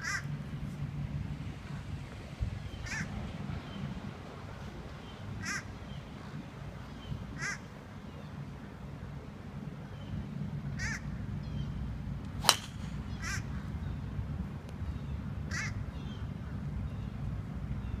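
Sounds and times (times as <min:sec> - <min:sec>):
low background rumble: 0:00.0 - 0:18.0
bird calling: 0:02.7 - 0:03.9, 0:05.0 - 0:08.4, 0:12.4 - 0:14.1, 0:14.8 - 0:17.2
golf club striking ball: 0:12.3 - 0:13.2.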